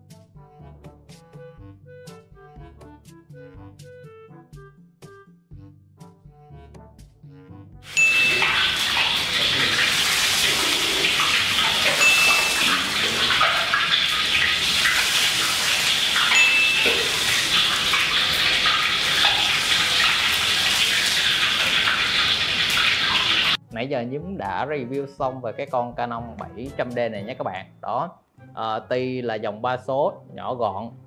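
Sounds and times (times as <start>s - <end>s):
hot oil sizzling and splashing: 7.9s - 23.6s.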